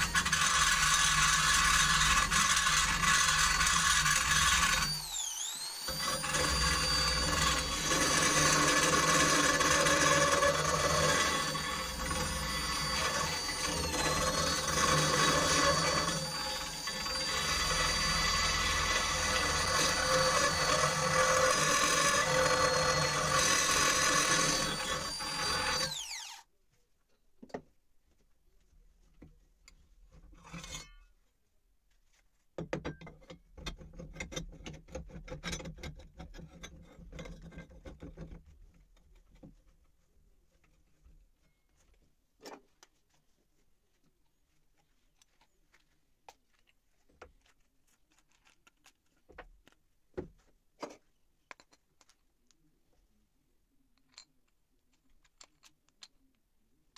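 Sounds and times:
power tool grinding steel: 0.0 - 26.4
power tool winding down: 0.0 - 26.5.

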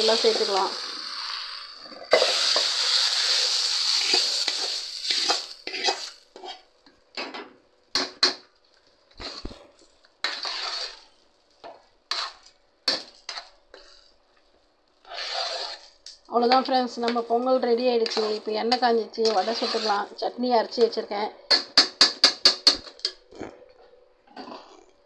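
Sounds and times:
hot oil sizzling: 0.0 - 6.9, 7.8 - 20.8
ladle scraping metal pot: 10.2 - 11.1, 12.1 - 14.1, 15.0 - 16.1, 18.0 - 20.1.

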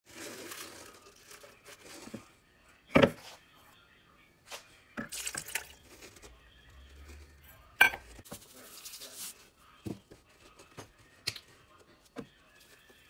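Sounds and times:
eggs pouring into jar: 0.1 - 2.3, 5.0 - 6.2.

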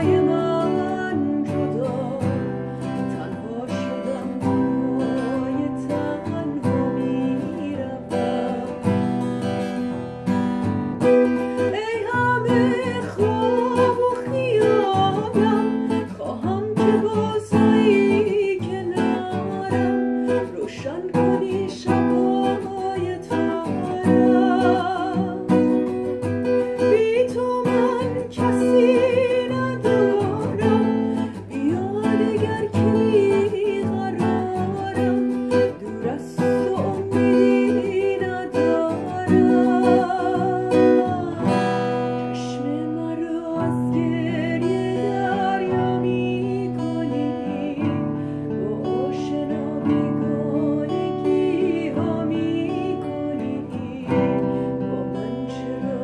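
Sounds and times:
strummed acoustic guitar: 0.0 - 56.0
woman singing with vibrato: 0.0 - 56.0.

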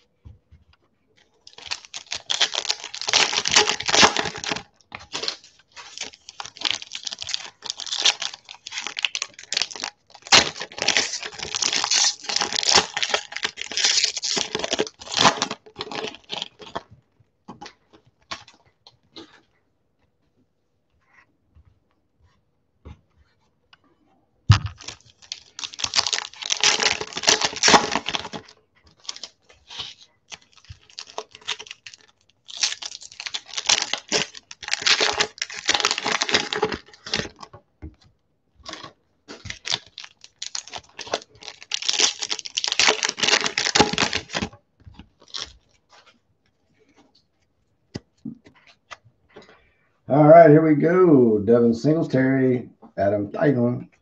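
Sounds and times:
foil wrapper crinkling and tearing: 1.4 - 16.8, 24.5 - 37.6, 38.6 - 46.2.

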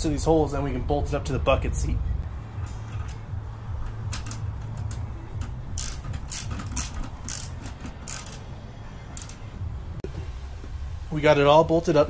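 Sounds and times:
ratchet wrench clicking: 2.6 - 8.5, 9.2 - 9.5.

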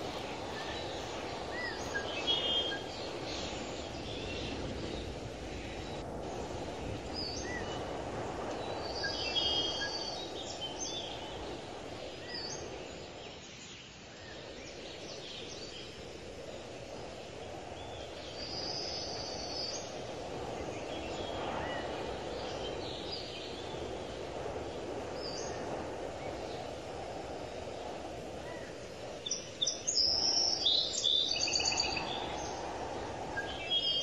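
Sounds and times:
birds chirping: 0.0 - 6.0
outdoor background noise: 0.0 - 34.0.

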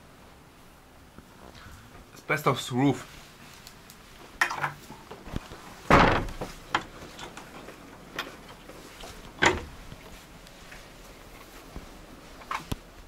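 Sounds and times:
wooden shed door knocking: 5.9 - 6.5.

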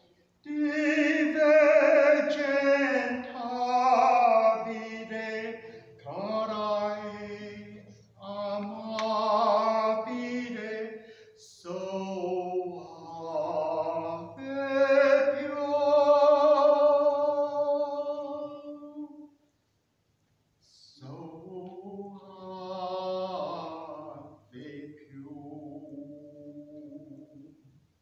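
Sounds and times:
man singing unaccompanied: 0.0 - 19.4, 20.6 - 27.7
breaths: 5.6 - 6.0, 7.8 - 8.2, 11.0 - 11.4.

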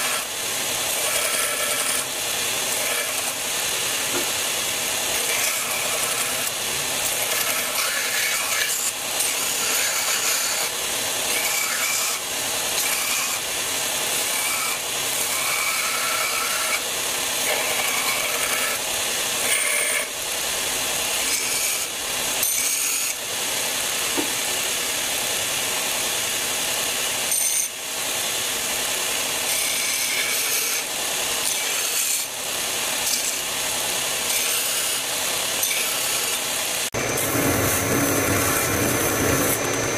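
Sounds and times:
belt grinder grinding steel blade: 0.0 - 23.2, 27.2 - 27.8, 28.6 - 39.9.

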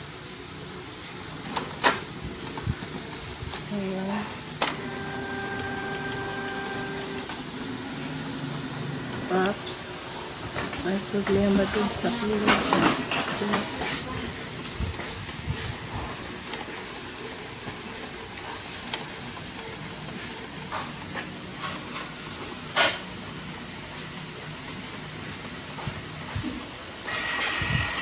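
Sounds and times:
printer mechanical hum: 0.0 - 28.0
printer clicks: 4.6 - 7.4.

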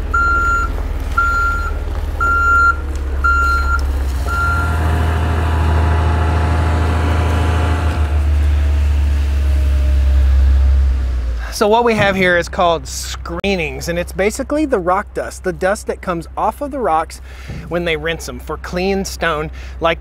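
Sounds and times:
truck reversing alarm beeping: 0.0 - 7.8
truck diesel engine: 0.0 - 20.0.

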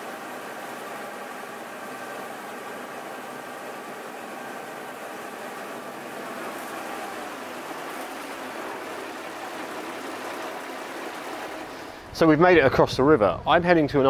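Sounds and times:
ferry engine running: 0.0 - 14.0
rushing water: 4.8 - 12.1.

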